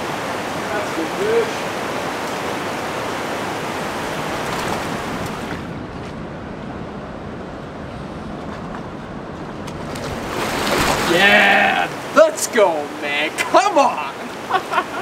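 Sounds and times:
stream flowing over rocks: 0.0 - 5.6, 10.0 - 15.0
fish splashing at surface: 9.8 - 11.2.

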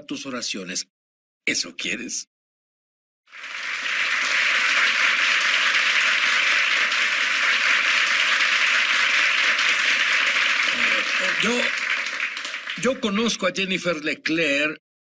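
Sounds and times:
audience applauding: 3.3 - 13.5.

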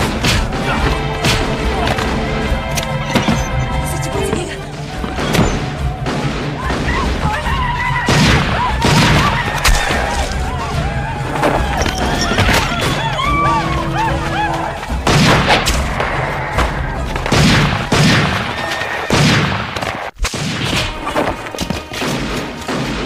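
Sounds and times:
orchestral score: 0.0 - 19.8, 20.4 - 23.0
heavy echoing gunshots: 5.0 - 10.2, 14.9 - 23.0
horses neighing: 9.2 - 17.3.

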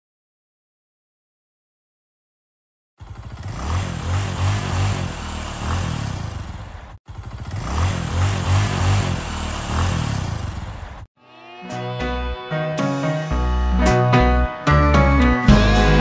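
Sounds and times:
motorcycle engine revving: 3.0 - 11.1.

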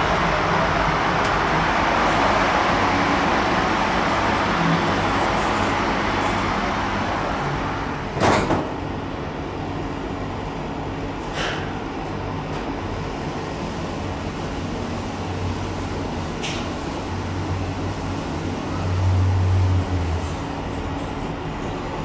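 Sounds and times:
traffic noise: 0.0 - 22.0
elevator doors sliding shut: 7.7 - 8.9.

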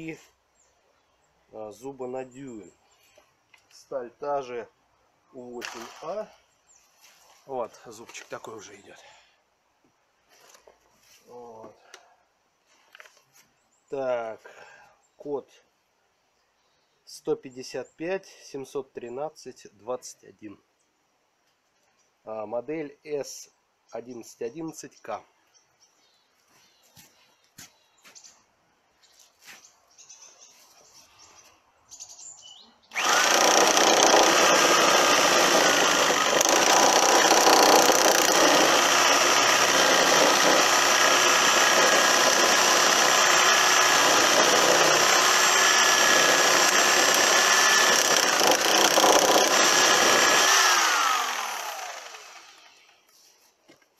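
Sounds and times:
reciprocating saw cutting wood: 32.9 - 52.9.

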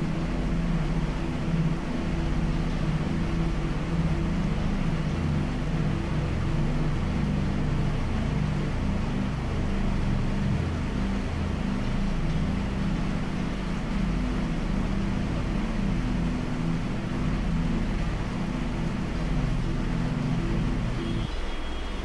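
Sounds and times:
deep rumble: 0.0 - 21.3
heavy rain hissing: 12.6 - 22.0.

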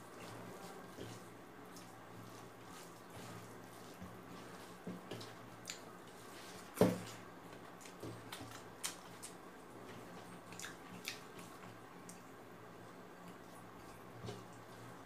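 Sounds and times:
chewing: 5.2 - 5.9, 7.6 - 9.4, 10.1 - 12.3.

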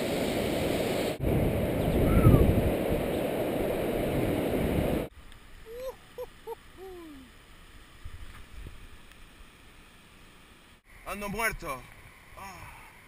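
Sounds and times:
wind rushing over camera: 0.0 - 5.1
soft pitched calls: 5.6 - 7.4.

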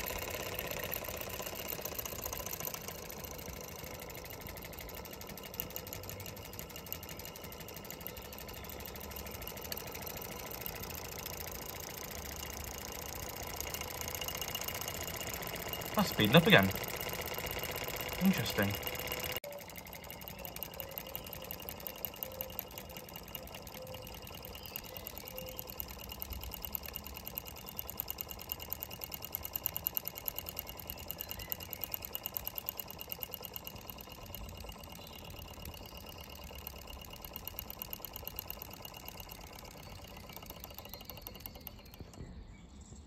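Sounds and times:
toy steam engine clattering: 0.0 - 42.4.

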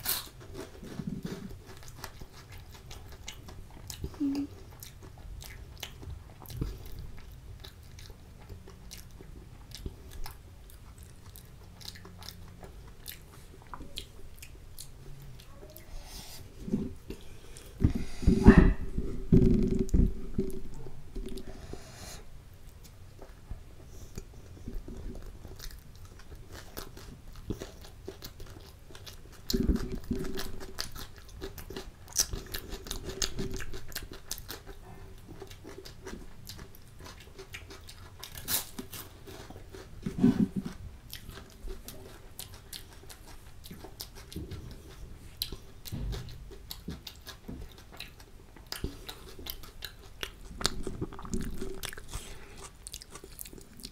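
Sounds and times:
chewing and biting bread: 0.0 - 53.9
cucumber crunching: 35.4 - 53.9.

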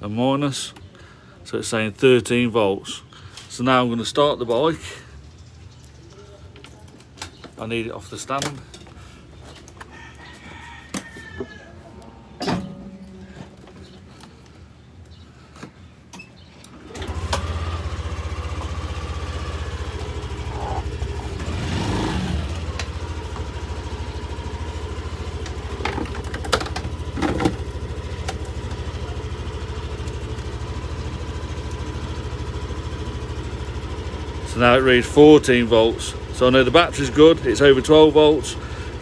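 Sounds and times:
faint engine whine: 0.7 - 39.0
scooter engine starting and idling: 15.8 - 39.0.

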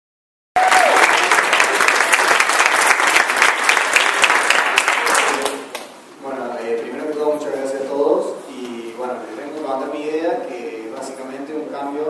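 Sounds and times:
audience applauding: 0.6 - 5.9.

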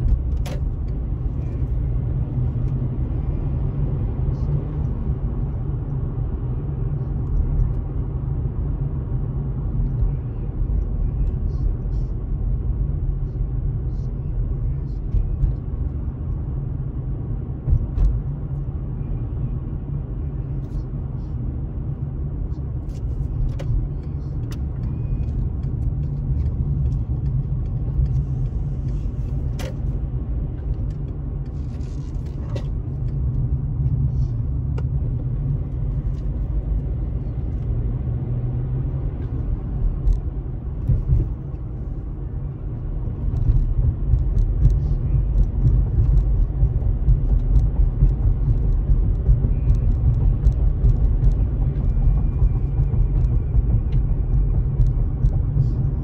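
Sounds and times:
car road and engine rumble: 0.0 - 56.0.

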